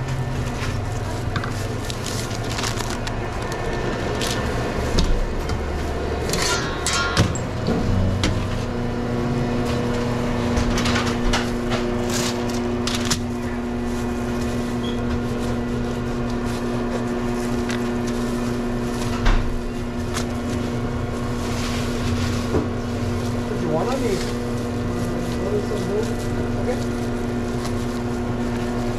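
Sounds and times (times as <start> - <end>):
kitchen equipment hum: 0.0 - 28.9.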